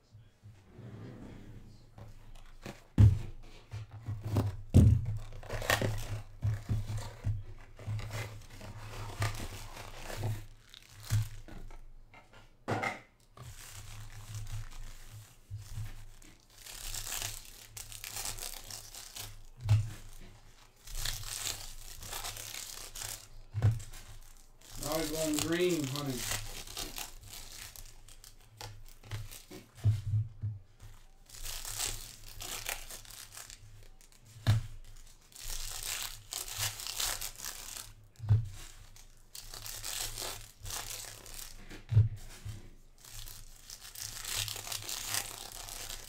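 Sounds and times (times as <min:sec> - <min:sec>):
packs knocking on table: 0:02.8 - 0:05.3
foil wrappers crinkling and tearing: 0:04.2 - 0:11.9, 0:13.3 - 0:29.8, 0:30.8 - 0:46.0.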